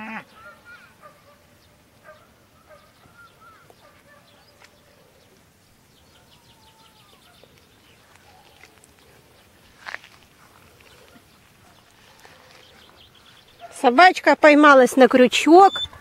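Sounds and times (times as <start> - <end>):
distant animal calls: 0.0 - 1.4, 2.0 - 5.3, 6.0 - 9.4.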